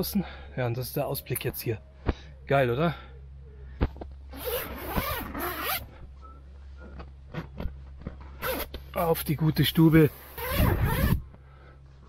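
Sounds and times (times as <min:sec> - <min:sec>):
zipper pulled open: 0:04.3 - 0:05.9, 0:08.4 - 0:08.8, 0:10.2 - 0:11.2.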